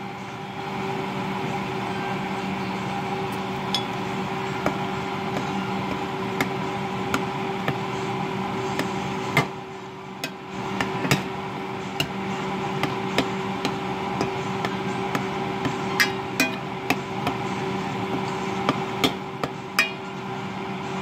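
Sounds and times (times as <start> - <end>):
steady hum: 0.0 - 21.0
metal spoon clinking and scraping pot: 15.8 - 16.8, 19.8 - 20.1.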